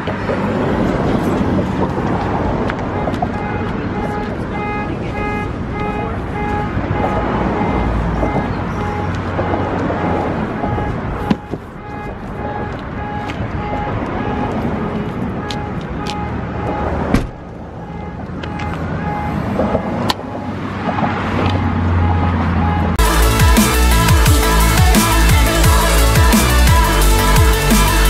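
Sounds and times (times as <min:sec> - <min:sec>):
cars passing: 0:00.0 - 0:28.0
loud drum and bass music: 0:23.0 - 0:28.0.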